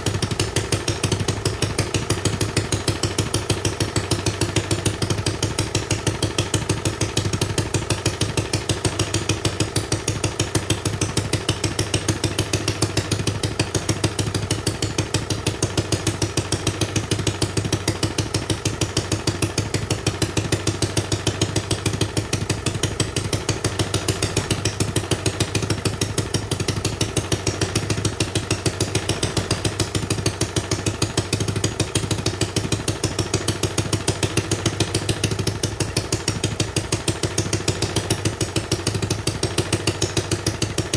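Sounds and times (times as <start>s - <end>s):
single-cylinder engine running: 0.0s - 40.9s.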